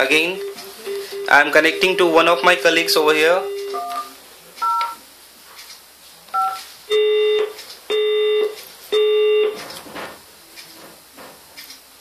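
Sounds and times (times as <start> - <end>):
call-progress beeps: 0.0 - 5.0, 6.4 - 9.6
keypad dtmf tones: 0.0 - 5.0, 6.3 - 9.6.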